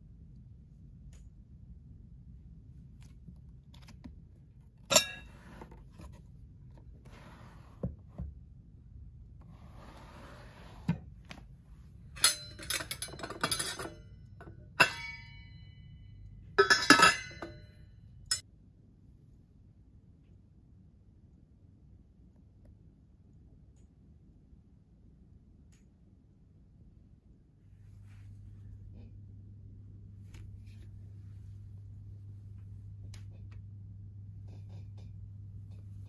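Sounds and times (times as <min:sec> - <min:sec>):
knocks and clinks of objects: 0:12.2 - 0:16.0, 0:16.6 - 0:18.4.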